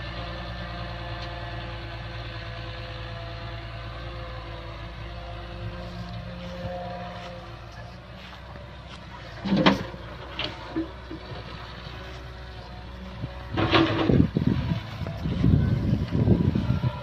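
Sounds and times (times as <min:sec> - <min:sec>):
excavator diesel engine running: 0:00.0 - 0:17.0
rumbling and clatter: 0:05.5 - 0:17.0.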